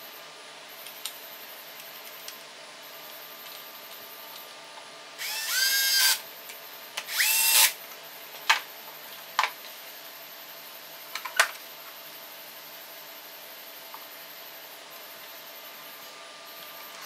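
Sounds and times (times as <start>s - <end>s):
cordless drill motor whine: 5.2s - 6.2s, 7.0s - 7.8s.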